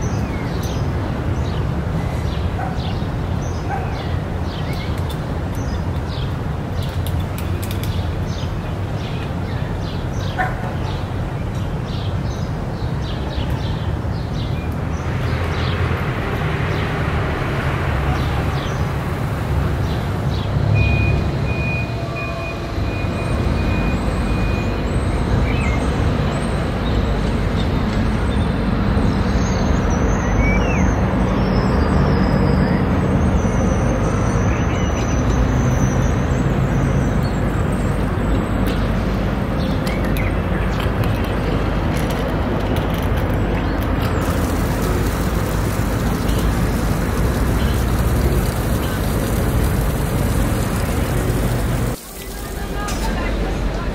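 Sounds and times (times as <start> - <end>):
road traffic hum: 0.0 - 53.9
vehicle passing: 44.0 - 53.9.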